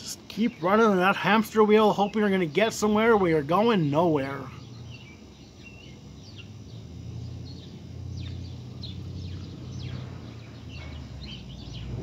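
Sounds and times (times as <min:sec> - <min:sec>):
small birds chirping: 0:00.0 - 0:12.0
steady low rumble: 0:04.5 - 0:12.0.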